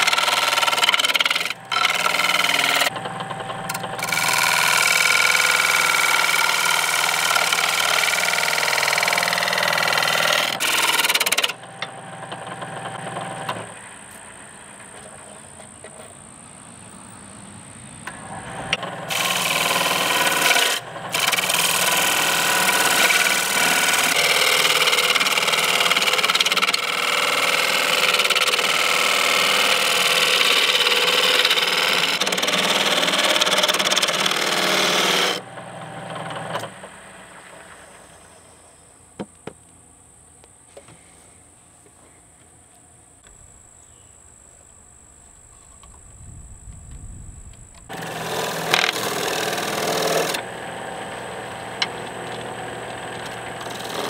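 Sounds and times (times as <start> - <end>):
gouge scraping spinning wood: 0.0 - 13.7, 18.1 - 38.0, 47.9 - 54.0
lathe high steady whine: 0.0 - 15.6, 18.1 - 38.8, 45.8 - 54.0.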